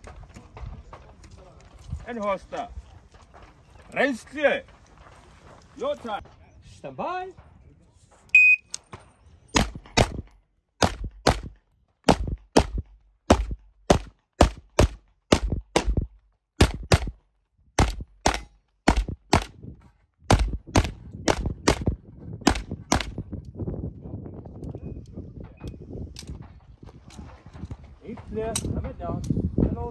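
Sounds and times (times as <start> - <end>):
electronic timer beep: 8.4 - 8.7
gunshots in quick pairs: 9.6 - 17.2, 17.8 - 19.6, 20.3 - 23.2.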